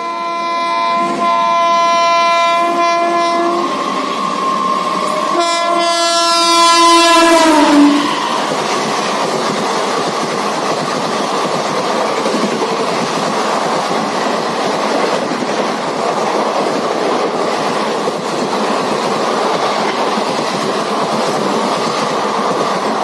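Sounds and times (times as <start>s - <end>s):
locomotive horn blasts: 0.0s - 3.8s, 5.0s - 8.3s
train coaches clattering past: 0.0s - 23.0s.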